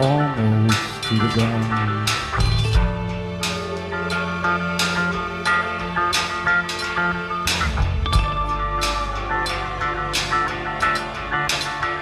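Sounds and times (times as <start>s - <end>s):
live band music: 0.0s - 12.0s
sustained low bass tone: 7.2s - 11.3s.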